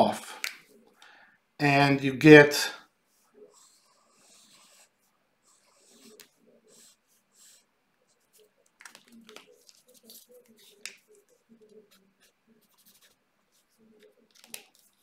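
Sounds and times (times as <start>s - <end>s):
marker pens scratching on paper: 3.1s - 15.0s.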